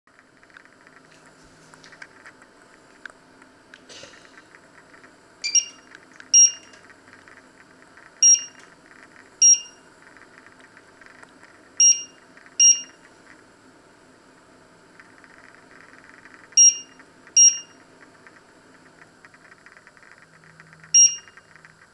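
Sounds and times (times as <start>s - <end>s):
short high touch-key beeps: 5.4s - 6.8s, 8.2s - 8.6s, 9.4s - 9.8s, 11.8s - 13.0s, 16.6s - 17.8s, 21.0s - 21.4s.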